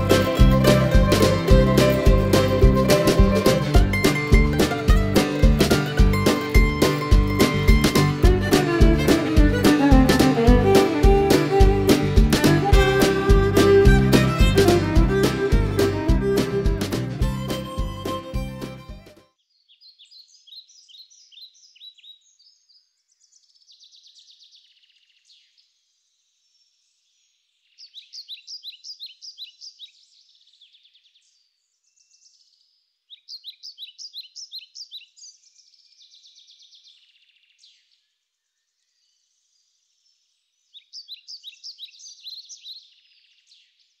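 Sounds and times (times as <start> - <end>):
songbird singing: 19.4 - 44.0.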